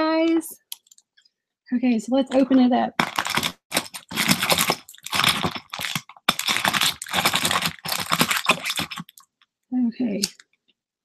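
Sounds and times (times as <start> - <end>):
wrapping crinkling and tearing: 3.0 - 9.2.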